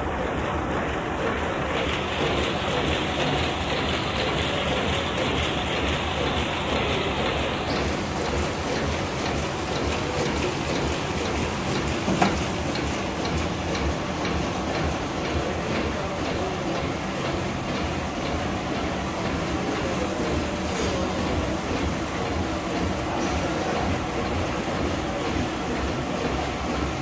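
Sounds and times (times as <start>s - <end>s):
printing press clatter: 0.0s - 27.0s.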